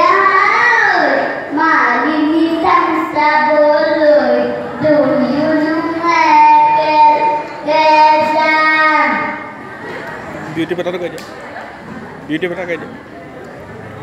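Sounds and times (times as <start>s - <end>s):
boy singing into a microphone: 0.0s - 9.4s.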